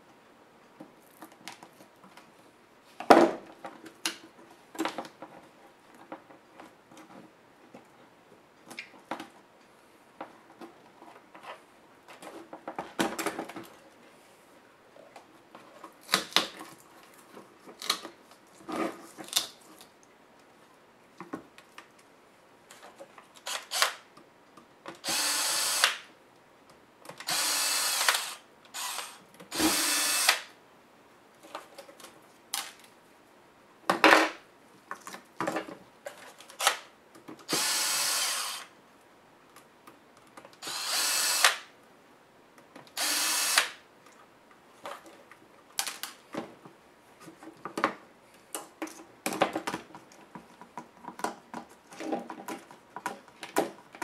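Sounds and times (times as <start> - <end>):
cordless drill spinning screws: 23.4 - 24.0, 25.0 - 26.0, 27.2 - 30.5, 37.5 - 38.7, 40.6 - 41.6, 43.0 - 43.8.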